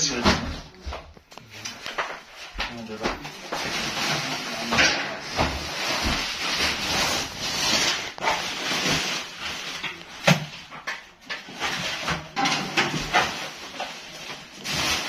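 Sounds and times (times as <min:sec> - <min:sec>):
cardboard boxes rustling and scraping: 0:03.3 - 0:10.0.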